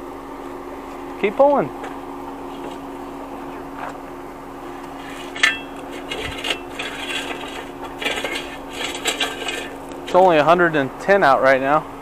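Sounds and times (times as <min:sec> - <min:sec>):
steady low hum: 0:00.0 - 0:12.0
wire scraping on concrete: 0:05.0 - 0:10.4
metallic clink: 0:05.3 - 0:10.2.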